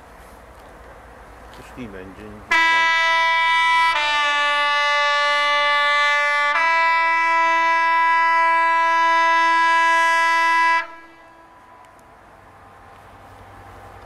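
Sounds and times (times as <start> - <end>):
locomotive horn blast: 2.5 - 12.0.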